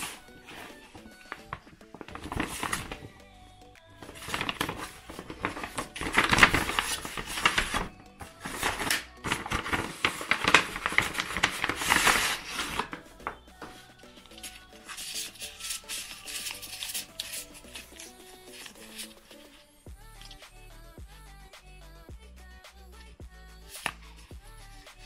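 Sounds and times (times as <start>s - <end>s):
paper rustling and crinkling: 0.0s - 3.2s, 4.0s - 20.4s, 23.7s - 24.2s
soft background music: 0.0s - 25.0s.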